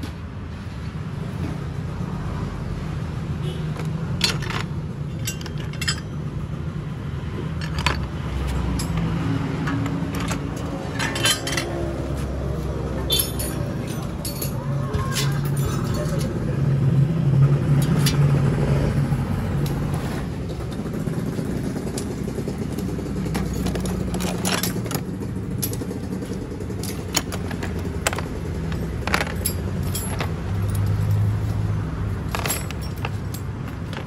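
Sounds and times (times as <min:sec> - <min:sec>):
metal parts clinking: 0:03.7 - 0:06.5, 0:07.4 - 0:12.0, 0:13.0 - 0:16.4, 0:22.0 - 0:34.0.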